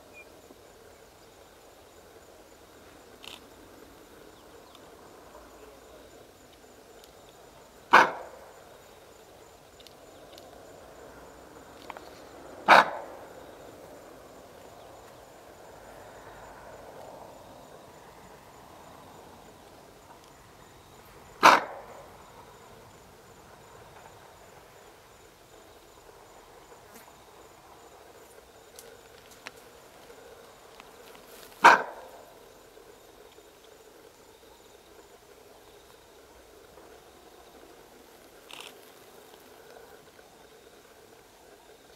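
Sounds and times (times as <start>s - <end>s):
antelope alarm barks: 7.9s - 8.5s, 12.6s - 13.3s, 21.4s - 22.1s, 31.6s - 32.3s.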